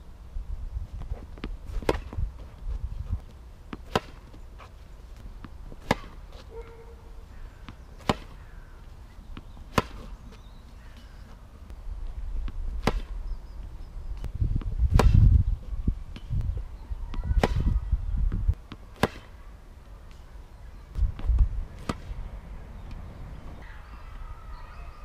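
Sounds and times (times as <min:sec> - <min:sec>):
tennis racket striking balls: 0:01.0 - 0:11.8, 0:12.4 - 0:15.4, 0:17.1 - 0:17.8, 0:18.5 - 0:19.4, 0:20.9 - 0:23.0.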